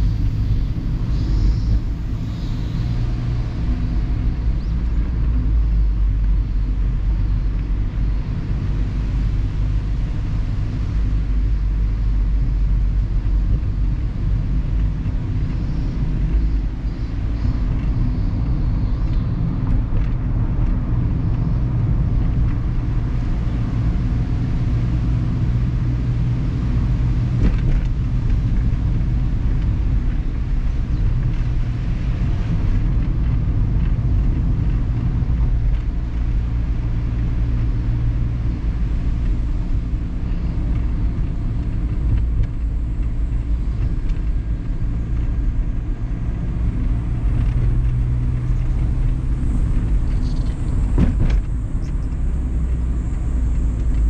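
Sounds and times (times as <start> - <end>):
car engine hum: 0.0 - 54.0
tyre and road noise: 0.0 - 54.0.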